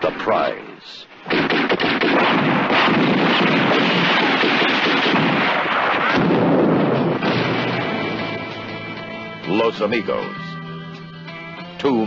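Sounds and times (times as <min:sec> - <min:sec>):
gunfire barrage: 0:01.2 - 0:09.0
explosions: 0:01.2 - 0:09.2.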